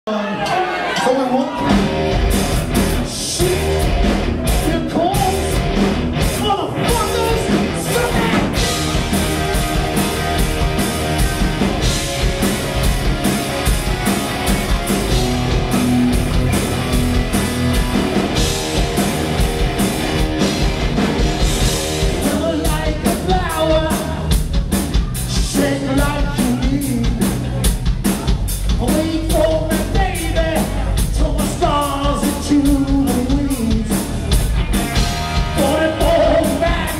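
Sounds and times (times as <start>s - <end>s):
man singing: 0.1s - 1.8s, 3.0s - 5.7s, 6.4s - 8.9s, 22.1s - 27.7s, 28.6s - 34.4s, 35.4s - 36.9s
drum kit: 0.3s - 36.9s
electric guitar: 1.5s - 28.2s, 28.9s - 36.9s
bass guitar: 1.5s - 36.9s.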